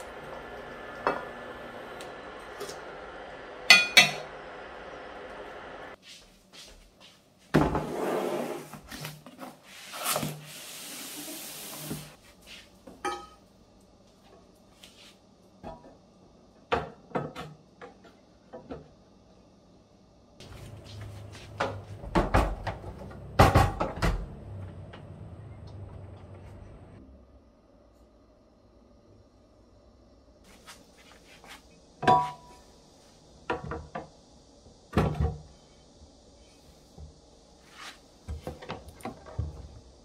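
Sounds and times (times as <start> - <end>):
kitchenware knocking and clattering: 3.7 - 4.3, 13.0 - 13.4, 21.6 - 24.2.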